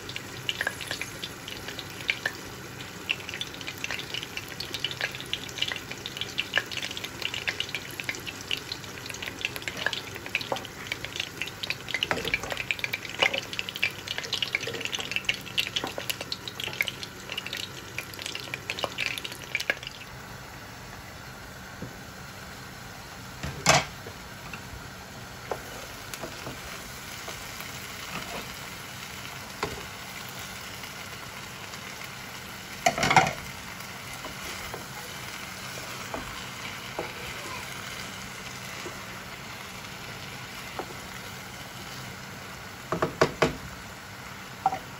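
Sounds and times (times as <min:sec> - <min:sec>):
curry sizzling in a pot: 0:00.0 - 0:44.9.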